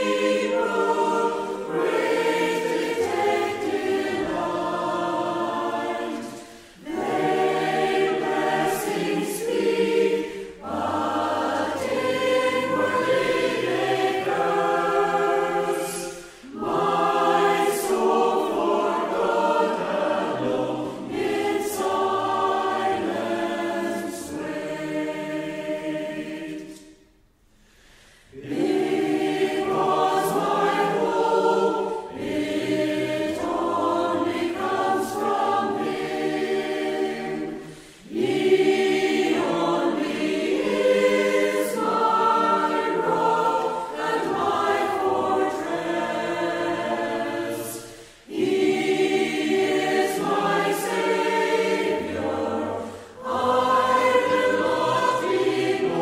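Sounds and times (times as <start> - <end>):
group singing unaccompanied: 0.0 - 27.3, 28.0 - 56.0.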